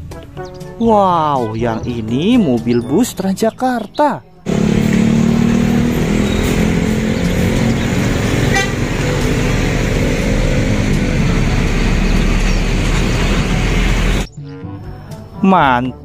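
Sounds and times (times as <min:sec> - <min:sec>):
city traffic noise: 0:04.4 - 0:14.3
bus engine running: 0:04.5 - 0:14.3
horn toot: 0:04.5 - 0:14.3.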